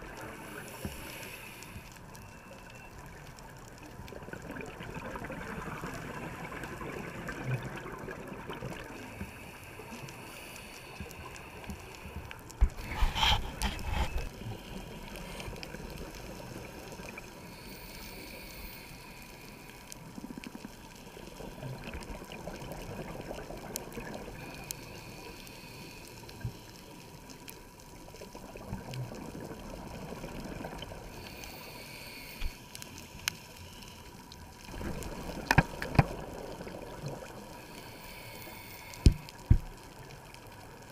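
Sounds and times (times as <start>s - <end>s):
regulator inhale hisses: 0.4s - 2.0s, 9.0s - 20.1s, 24.4s - 27.2s, 31.1s - 34.2s, 37.5s - 39.6s.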